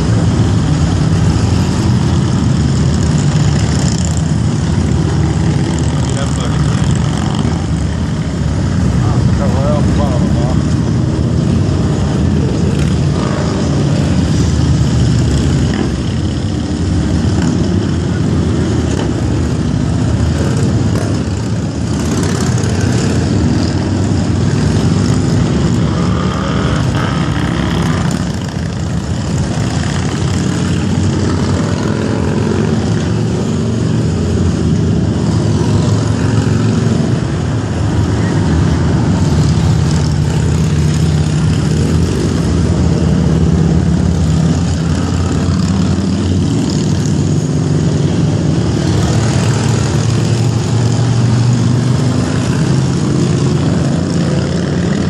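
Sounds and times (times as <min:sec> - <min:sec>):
motorcycles riding past: 0:00.0 - 0:55.0.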